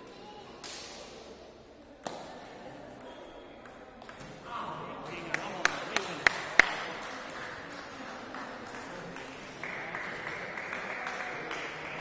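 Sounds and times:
light applause: 5.0 - 12.0.

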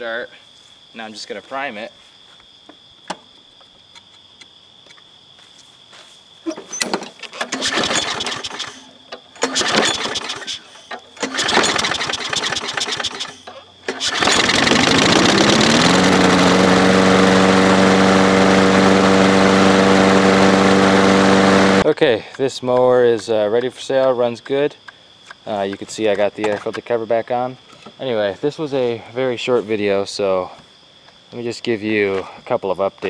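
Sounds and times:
lawn mower engine starting: 6.5 - 21.8.

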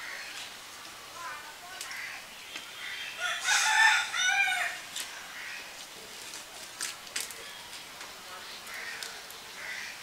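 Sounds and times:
rooster crowing: 3.2 - 4.8.

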